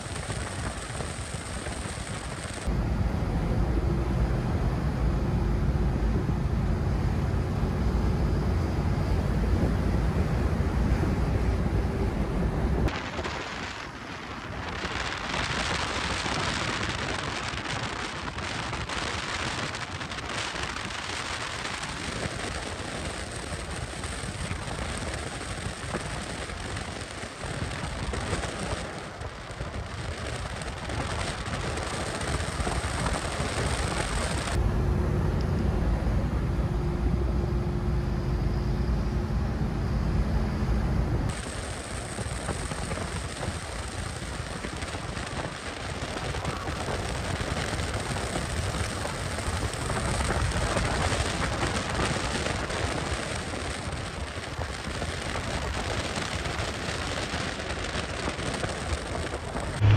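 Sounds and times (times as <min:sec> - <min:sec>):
car engine drone: 0:00.0 - 0:13.8, 0:30.1 - 0:43.0, 0:59.5 - 0:59.9
wind and tyres rushing: 0:00.0 - 0:37.3, 0:40.2 - 0:59.9.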